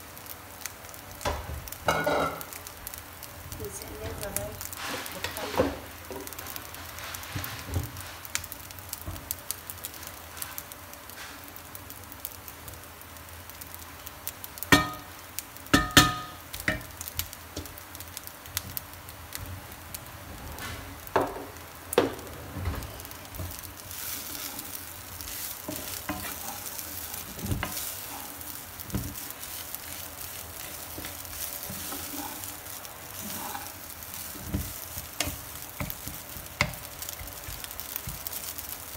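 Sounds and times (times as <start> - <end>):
rice sizzling in a frying pan: 0.0 - 38.9
spatula scraping a pan: 23.8 - 38.7.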